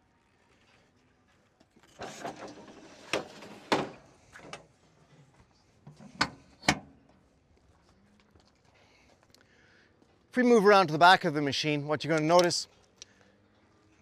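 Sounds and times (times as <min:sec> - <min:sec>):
metal panel scraping slide: 0:02.0 - 0:04.0.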